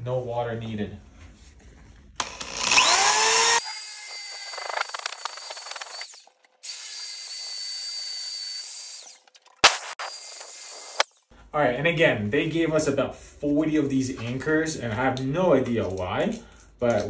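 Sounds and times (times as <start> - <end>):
drill whining and grinding: 2.2 - 9.2, 9.8 - 11.2.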